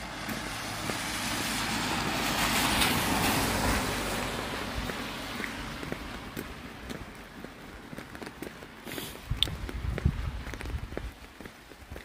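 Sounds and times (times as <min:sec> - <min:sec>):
van driving past on wet road: 0:00.0 - 0:09.1
tyres hissing on wet asphalt: 0:00.0 - 0:12.0.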